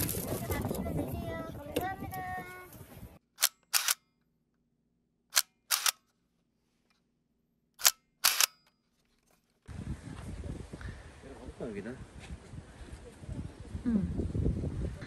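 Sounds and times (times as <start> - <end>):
camera shutter click: 3.4 - 4.0, 5.3 - 6.0, 7.8 - 8.6.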